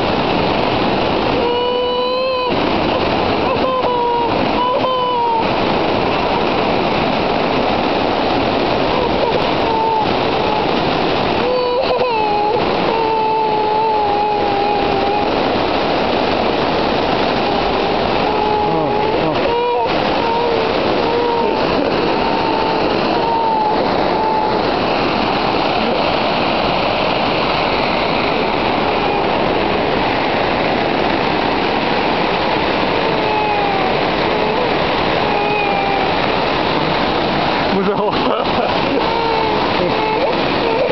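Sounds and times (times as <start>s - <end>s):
waterfall rushing into pool: 0.0s - 40.9s
toddler crying: 1.3s - 6.6s, 8.8s - 15.5s, 17.3s - 26.2s, 28.2s - 29.6s, 32.8s - 36.3s, 38.6s - 40.9s.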